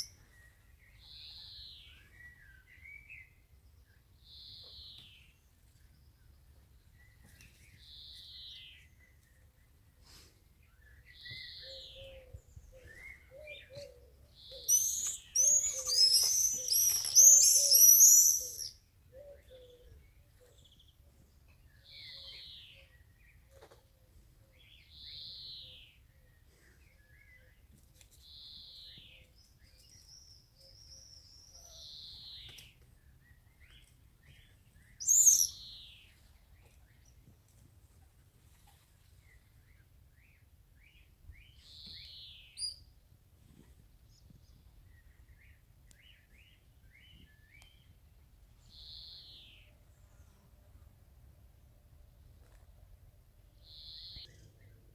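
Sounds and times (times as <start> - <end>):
soft bird chirps: 0.0 - 50.6, 53.6 - 54.9
swifts screaming: 14.6 - 18.7.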